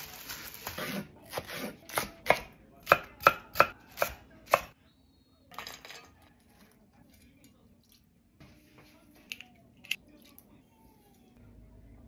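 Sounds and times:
knife chopping on wooden board: 0:00.8 - 0:04.7.

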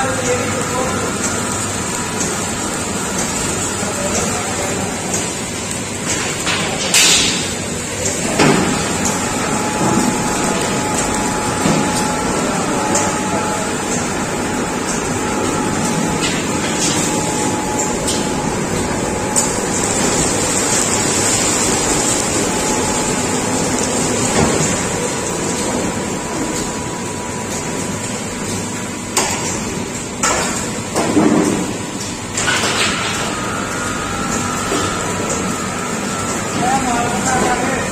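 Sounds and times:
machinery running: 0:00.0 - 0:37.9
faint machine whine: 0:07.6 - 0:28.6, 0:30.3 - 0:37.9.

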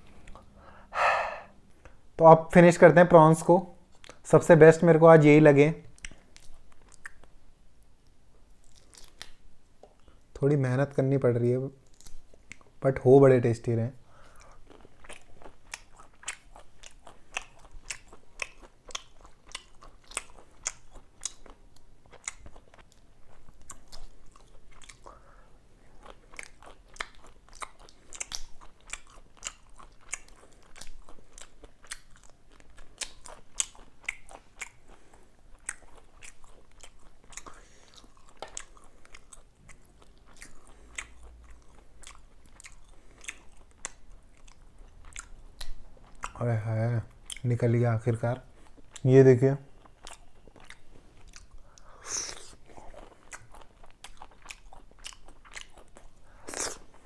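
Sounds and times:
chewing and crunching prawns: 0:08.6 - 0:09.4, 0:14.0 - 0:49.1, 0:49.7 - 0:57.0.

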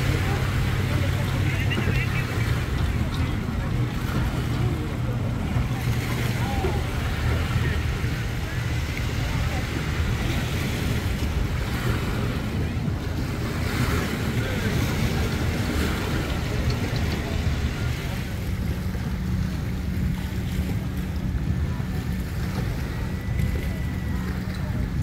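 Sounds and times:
boat motor humming: 0:00.0 - 0:25.0
water lapping at dock: 0:00.0 - 0:25.0.

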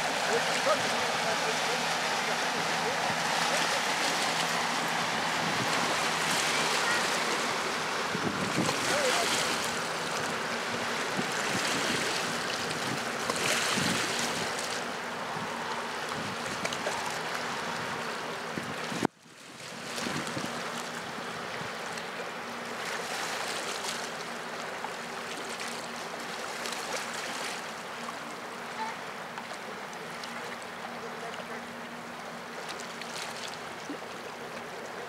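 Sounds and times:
boat engines humming: 0:00.0 - 0:35.0
fast-flowing river water: 0:00.0 - 0:35.0
wind on microphone: 0:05.1 - 0:06.5, 0:08.0 - 0:09.1, 0:10.7 - 0:14.6, 0:15.3 - 0:17.0, 0:19.8 - 0:20.7.

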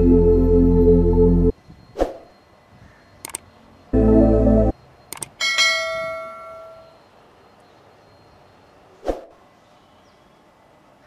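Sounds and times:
bell chime: 0:03.8 - 0:08.8.

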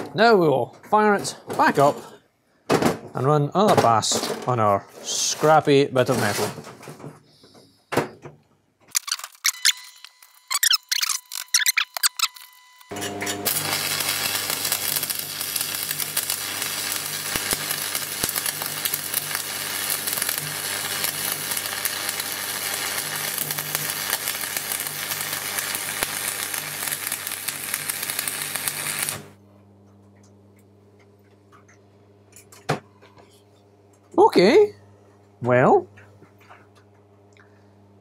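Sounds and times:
welding arc crackling: 0:08.9 - 0:29.4
welder hum: 0:09.0 - 0:29.4.

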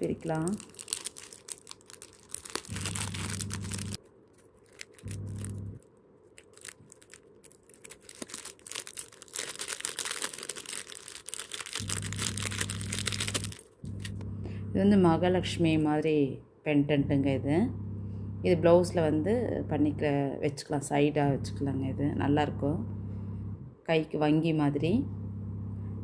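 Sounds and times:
plastic packet crinkling and tearing: 0:00.0 - 0:14.1
low steady hum: 0:00.0 - 0:26.0.

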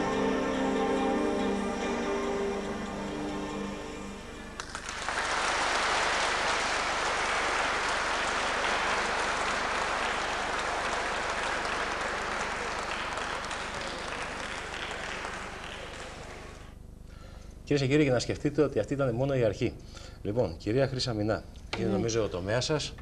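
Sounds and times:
backing music: 0:00.0 - 0:05.1
audience applauding: 0:04.6 - 0:16.8.

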